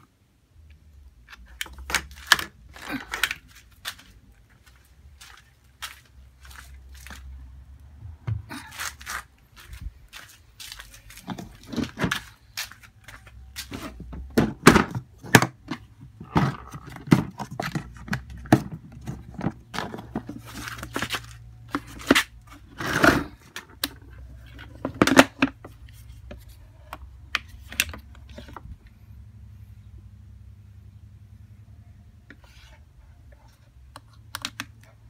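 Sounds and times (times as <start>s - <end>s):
low steady hum: 0.0s - 35.0s
knocks and scraping of handling: 8.1s - 29.0s, 32.2s - 35.0s.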